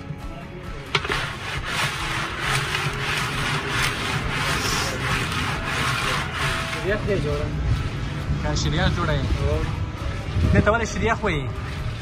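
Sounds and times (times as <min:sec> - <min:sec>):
metal spoon scraping steel pot: 0:00.9 - 0:07.4.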